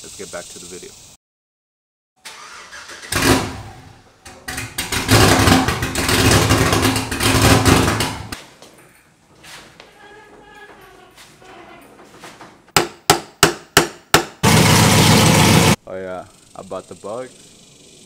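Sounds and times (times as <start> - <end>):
truck engine running loud: 14.4 - 15.8.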